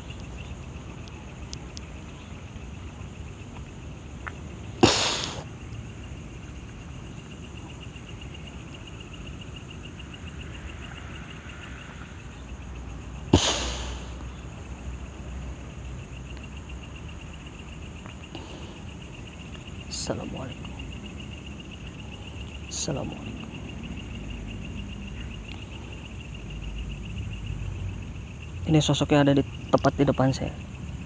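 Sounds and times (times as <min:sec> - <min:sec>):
night insects trilling: 0:00.0 - 0:31.0
sharp hissing burst: 0:04.8 - 0:05.5, 0:13.3 - 0:14.2.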